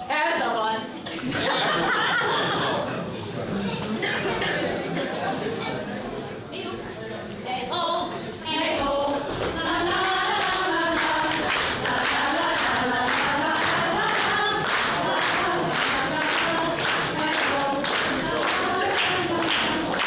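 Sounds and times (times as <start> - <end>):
group singing unaccompanied: 8.3 - 20.0
hand claps: 10.0 - 20.0.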